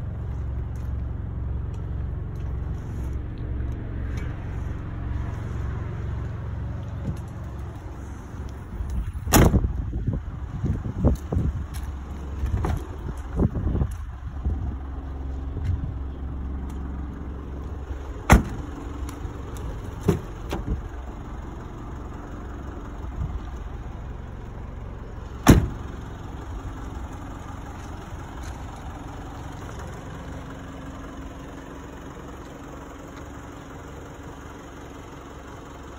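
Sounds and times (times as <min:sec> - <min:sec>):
car engine idling: 0:00.0 - 0:35.9
car doors slamming: 0:09.3 - 0:09.7, 0:18.2 - 0:20.8, 0:25.4 - 0:26.1.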